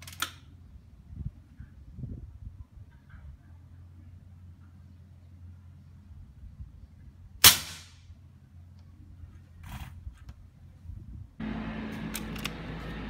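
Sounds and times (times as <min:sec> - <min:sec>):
air rifle shot: 0:07.4 - 0:08.0.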